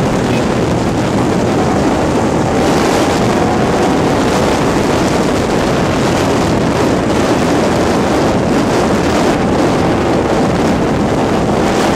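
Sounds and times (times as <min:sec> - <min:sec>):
motorcycle engine drone: 0:00.0 - 0:11.9
wind noise on microphone: 0:00.0 - 0:11.9.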